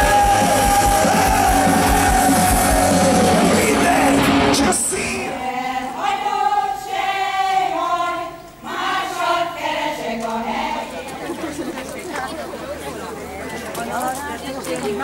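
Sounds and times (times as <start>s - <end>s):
bass drum beat: 0.0s - 4.5s
live band music: 0.0s - 5.0s
crowd noise: 0.0s - 15.0s
choir of women singing: 4.9s - 11.6s.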